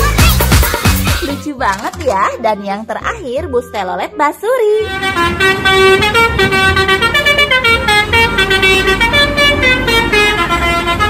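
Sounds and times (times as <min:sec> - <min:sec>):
multi-tone bus horn tune: 0:04.7 - 0:11.0.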